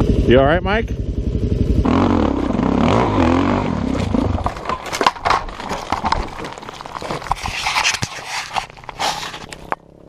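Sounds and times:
motorcycle engine: 0:00.0 - 0:10.0
hands handling gear: 0:04.4 - 0:09.8.

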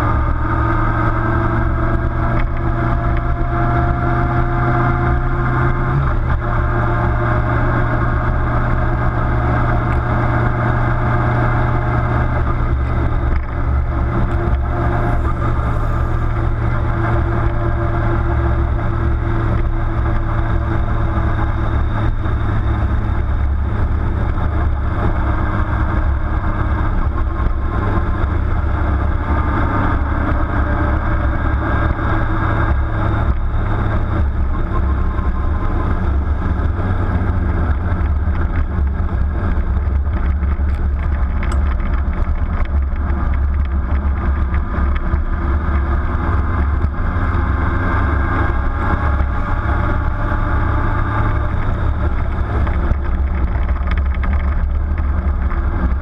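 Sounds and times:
road noise: 0:00.0 - 0:56.0
vehicle engine rumble: 0:00.0 - 0:56.0.

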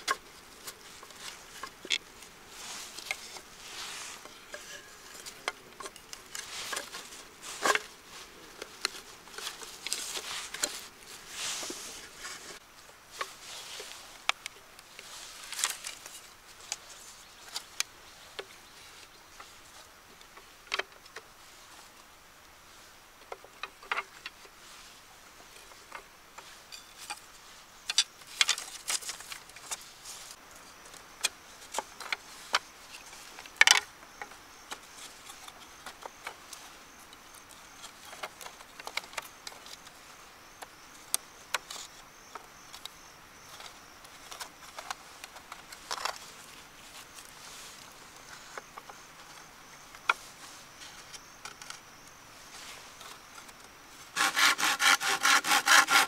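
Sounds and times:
bamboo scraping: 0:00.0 - 0:56.0
bamboo clicks: 0:14.2 - 0:16.1.

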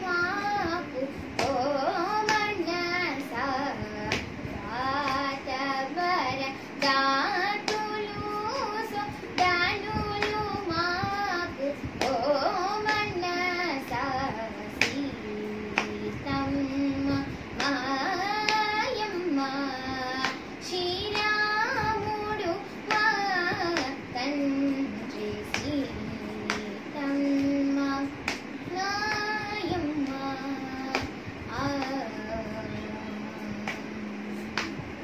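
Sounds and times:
girl singing: 0:00.0 - 0:35.0
hand slap: 0:01.4 - 0:01.6, 0:02.2 - 0:02.5, 0:04.1 - 0:04.4, 0:09.4 - 0:10.5, 0:14.8 - 0:15.1, 0:15.8 - 0:16.0, 0:20.2 - 0:20.4, 0:23.7 - 0:24.0, 0:25.5 - 0:26.8, 0:28.2 - 0:29.3, 0:30.9 - 0:31.2, 0:33.6 - 0:34.9.

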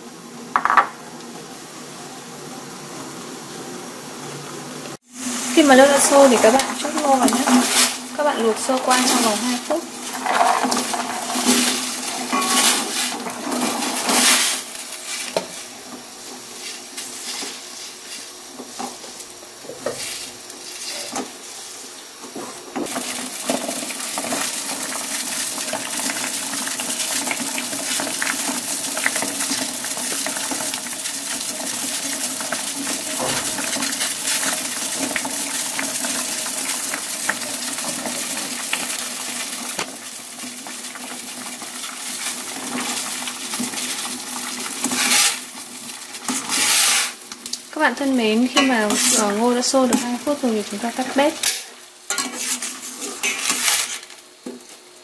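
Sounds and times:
hiss of heating water: 0:00.0 - 0:55.0
corn kernels clattering into pot: 0:06.0 - 0:15.7, 0:22.8 - 0:41.5
metal spoon scraping pot: 0:12.3 - 0:13.0.

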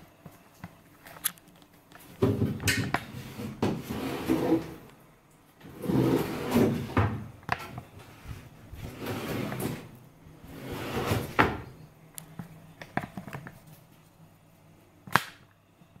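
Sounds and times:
drawers sliding on runners: 0:03.1 - 0:04.8, 0:05.6 - 0:07.1, 0:08.8 - 0:11.7.

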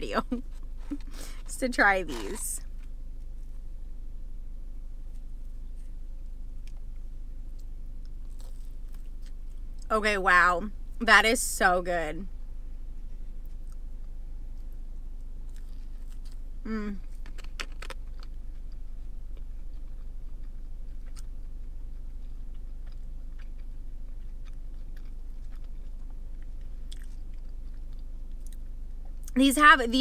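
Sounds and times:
steady low hum: 0:00.0 - 0:30.0
person chewing crunchy food: 0:02.0 - 0:03.5, 0:06.5 - 0:09.9, 0:13.2 - 0:29.4.

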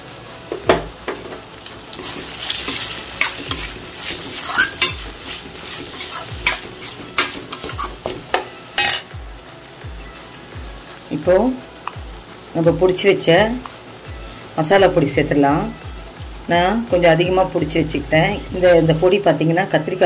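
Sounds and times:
vegetables sizzling in oil: 0:00.0 - 0:20.0
ladle scraping steel pan: 0:02.0 - 0:08.0.

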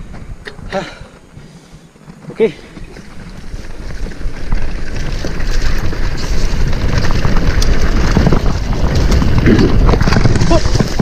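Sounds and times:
bike rattling over bumps: 0:00.0 - 0:11.0
tyres rolling on dirt: 0:00.0 - 0:11.0
wind buffeting microphone: 0:02.6 - 0:11.0.

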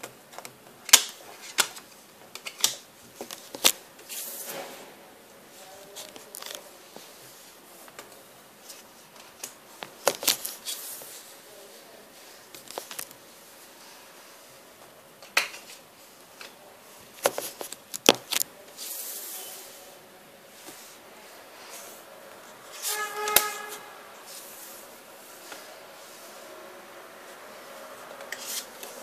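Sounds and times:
light rustling of cards: 0:05.5 - 0:14.4, 0:15.2 - 0:19.4.

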